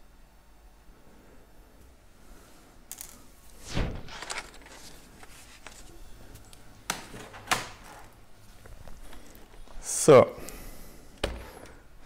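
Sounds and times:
plastic scraping rustle: 3.7 - 6.0.

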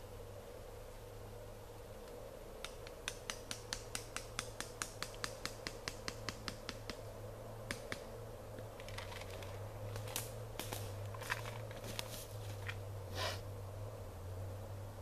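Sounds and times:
rustling in dry leaves: 8.8 - 13.4.

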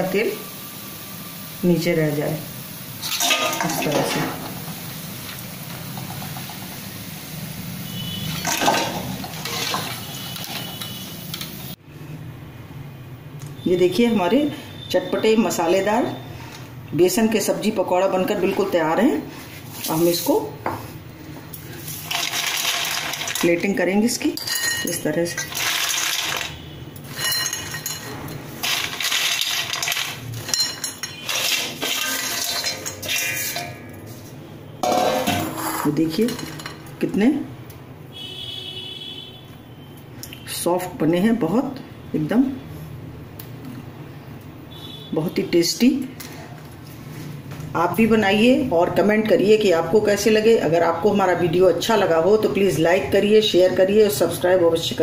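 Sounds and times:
food sizzling in hot oil: 0.0 - 11.8, 21.6 - 23.8, 24.5 - 33.6
metal spoon scraping through oil: 7.9 - 11.5, 24.4 - 36.8.

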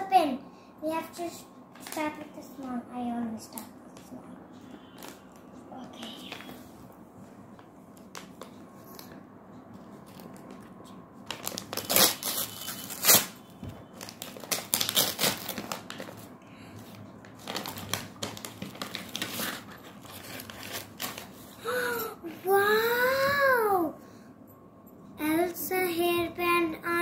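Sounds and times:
wrapping paper tearing and rustling: 11.2 - 16.3, 17.2 - 21.6.

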